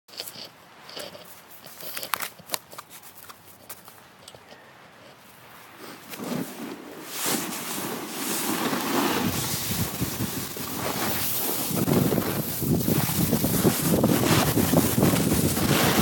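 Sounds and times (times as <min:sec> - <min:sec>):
snowboard scraping over snow: 0:05.8 - 0:16.0
wind buffeting microphone: 0:08.6 - 0:16.0.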